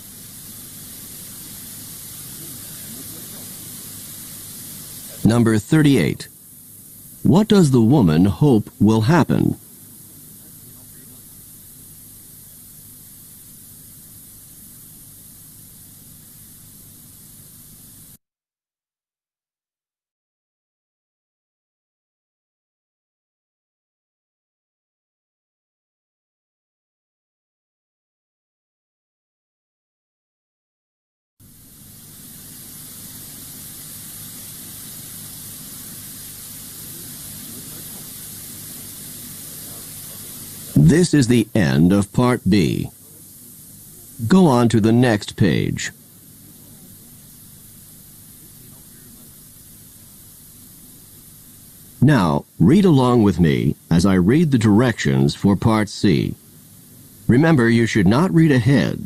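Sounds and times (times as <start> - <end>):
background hiss: 0.0 - 18.2, 31.4 - 59.0.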